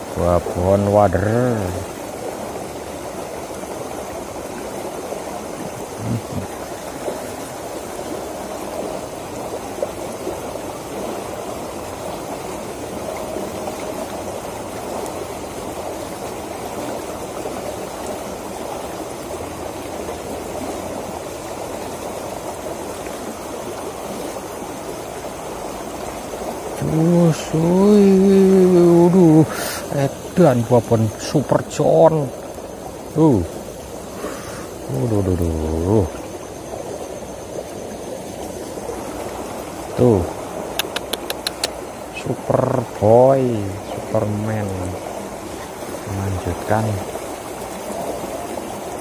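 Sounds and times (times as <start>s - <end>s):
water rushing down ditch: 0.0s - 49.0s
faint click: 40.7s - 41.8s.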